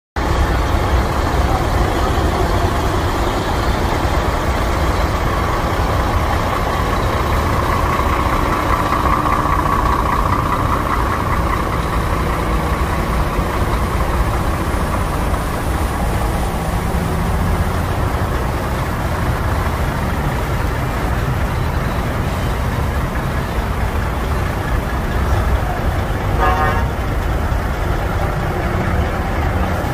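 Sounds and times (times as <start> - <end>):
vehicles rumbling: 0.2 - 29.9
short horn toot: 26.4 - 27.0.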